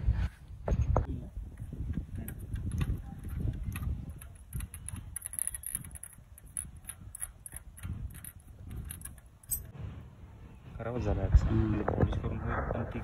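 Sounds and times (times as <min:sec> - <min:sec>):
low handling rumble: 0:00.0 - 0:13.0
metallic clicks and scratches: 0:01.5 - 0:09.7.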